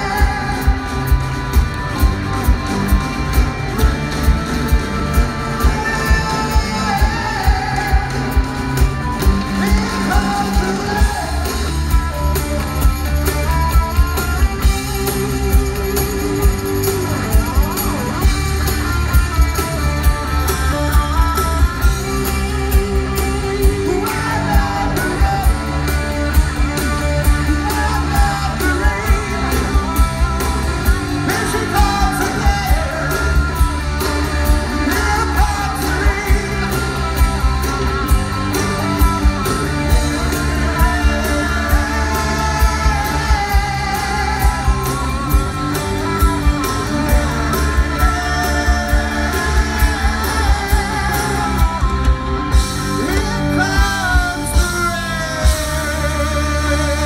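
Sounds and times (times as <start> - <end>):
male singer: 0.0 - 1.4, 5.0 - 12.0, 21.8 - 26.5, 27.1 - 37.7, 39.8 - 45.6, 47.1 - 57.0
steady drum beat: 0.0 - 56.7
electric guitars: 0.0 - 57.0.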